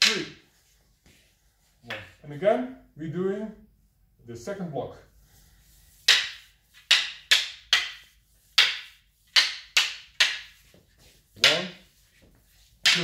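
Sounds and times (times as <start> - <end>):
wooden sticks clacking together: 0.0 - 0.3, 6.0 - 10.7, 11.4 - 11.9, 12.8 - 13.0.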